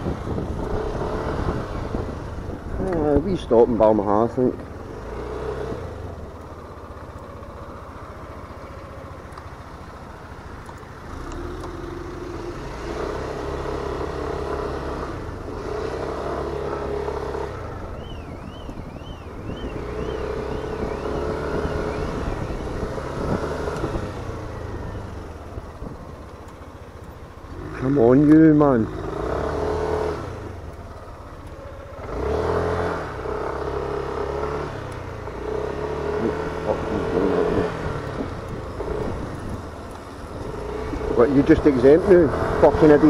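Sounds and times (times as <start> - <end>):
scooter engine revving: 0.0 - 4.0, 4.6 - 43.0.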